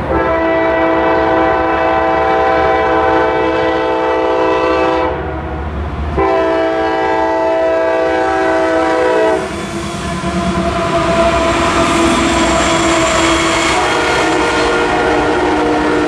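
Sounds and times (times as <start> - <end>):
locomotive air horn blast: 0.0 - 5.4, 6.2 - 16.0
locomotive engine noise: 5.2 - 16.0.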